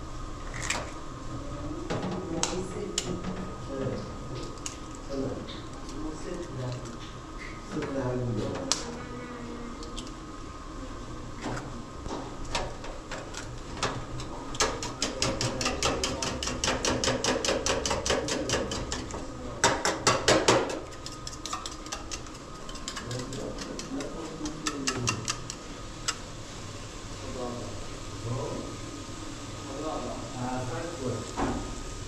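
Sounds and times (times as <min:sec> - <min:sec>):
spoon clattering against metal bowl: 0:14.6 - 0:26.2.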